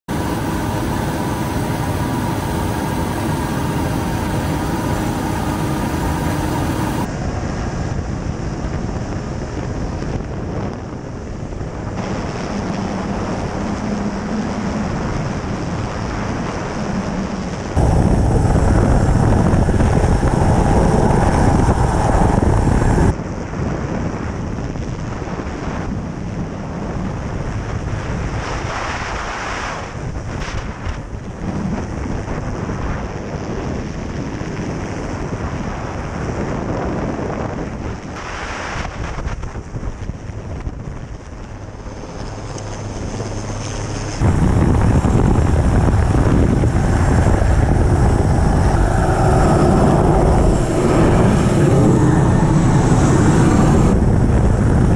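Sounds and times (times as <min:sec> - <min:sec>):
steady whine: 0:00.0 - 0:07.3, 0:11.9 - 0:23.2, 0:41.4 - 0:54.9
helicopter rotor and turbine: 0:00.0 - 0:23.3, 0:39.4 - 0:54.9
wind buffeting microphone: 0:00.0 - 0:54.9.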